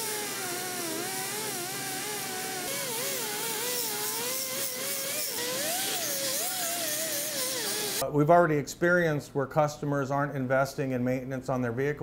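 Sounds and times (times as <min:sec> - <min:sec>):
power tool whining: 0:00.0 - 0:08.0.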